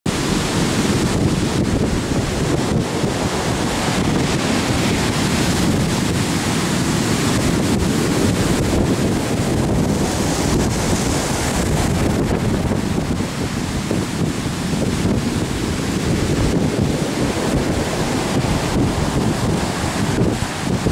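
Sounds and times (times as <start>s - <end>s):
surf breaking on beach: 0.1s - 20.9s
wind buffeting microphone: 0.1s - 20.9s.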